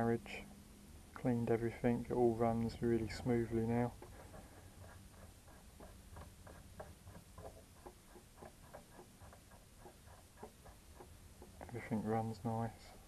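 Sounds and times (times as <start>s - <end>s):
faint lathe handwheel clicking: 2.7s - 13.0s.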